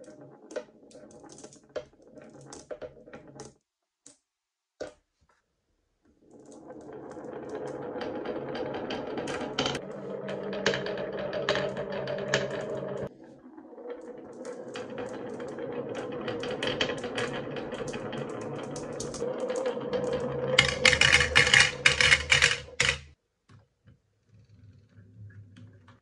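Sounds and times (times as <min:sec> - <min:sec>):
marbles rolling down wooden track: 0:00.0 - 0:03.6, 0:06.1 - 0:23.2
marbles clacking into plastic truck: 0:06.2 - 0:23.2.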